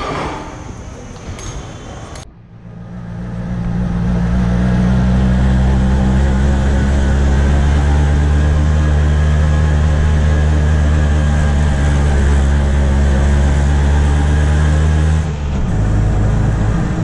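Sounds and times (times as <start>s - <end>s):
auto-rickshaw engine running: 2.5s - 17.0s.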